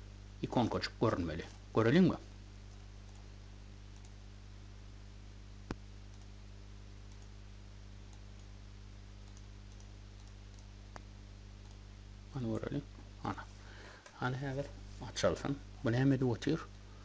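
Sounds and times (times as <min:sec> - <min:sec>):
low electrical hum: 0:00.0 - 0:17.0
computer mouse clicking: 0:02.7 - 0:03.3, 0:03.9 - 0:04.2, 0:05.7 - 0:06.4, 0:07.0 - 0:07.4, 0:08.1 - 0:08.5, 0:09.2 - 0:11.8.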